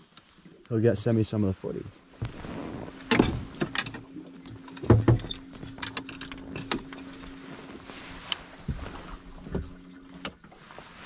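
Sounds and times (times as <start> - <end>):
steady low hum: 0.7 - 11.0
footsteps thumping on boat deck: 8.6 - 9.8.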